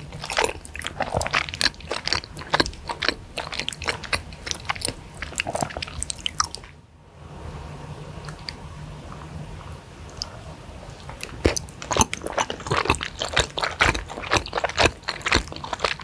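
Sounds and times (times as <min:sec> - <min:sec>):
close chewing with wet mouth clicks: 0:00.0 - 0:06.7, 0:11.0 - 0:16.0.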